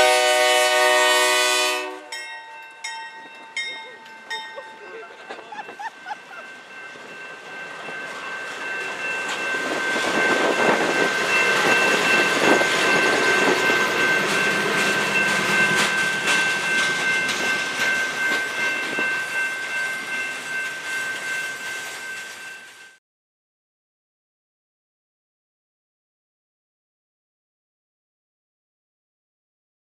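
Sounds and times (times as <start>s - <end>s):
freight train rolling past: 0.0s - 23.0s.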